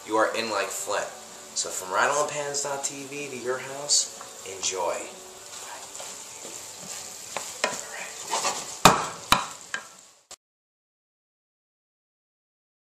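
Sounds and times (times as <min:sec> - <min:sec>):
food sizzling in a pan: 0:00.0 - 0:10.4
utensil knocking against pan: 0:08.8 - 0:09.9.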